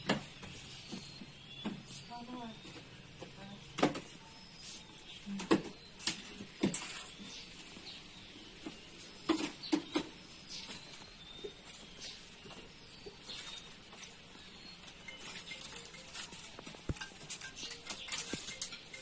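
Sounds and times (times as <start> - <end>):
faint high chirps: 8.4 - 19.0.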